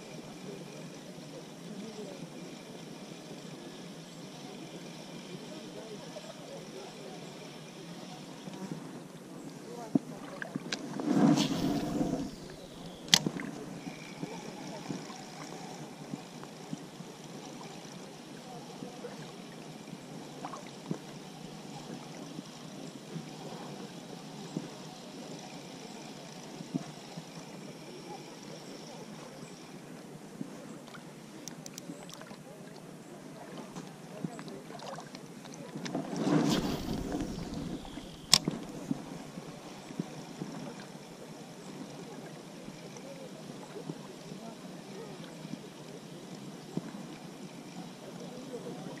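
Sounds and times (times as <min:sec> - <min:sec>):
fishing reel whirring: 0:00.0 - 0:08.7, 0:10.7 - 0:29.9, 0:36.4 - 0:43.6, 0:44.2 - 0:48.9
fishing reel click: 0:11.7 - 0:18.0, 0:36.6 - 0:39.4
faint clicks: 0:30.8 - 0:32.4, 0:36.6 - 0:39.0.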